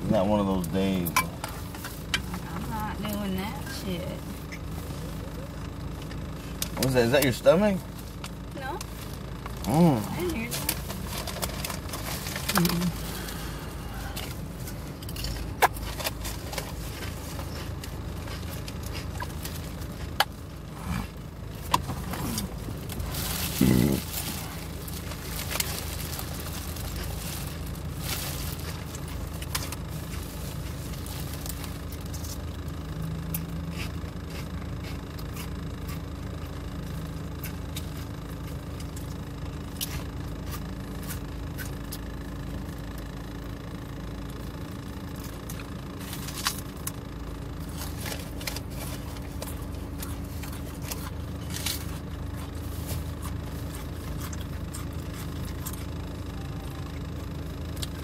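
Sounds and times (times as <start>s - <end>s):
car cabin hum: 0.0s - 58.0s
chewing: 10.6s - 32.6s, 33.2s - 42.1s, 47.6s - 57.1s
plastic bag crackling: 22.5s - 32.2s.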